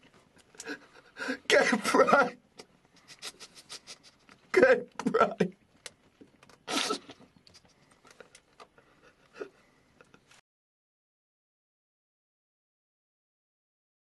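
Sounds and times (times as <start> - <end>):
man sobbing: 0.6 - 2.4, 3.0 - 5.6.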